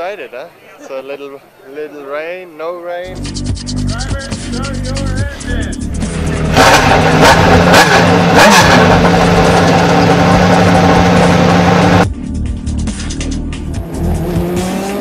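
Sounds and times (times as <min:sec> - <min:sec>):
race car engine revving and idling: 0:03.1 - 0:15.0.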